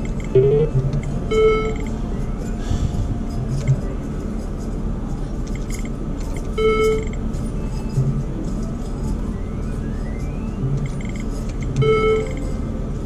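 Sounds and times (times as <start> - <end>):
video poker machine chime: 0.2 - 1.9, 6.5 - 7.2, 9.1 - 12.7.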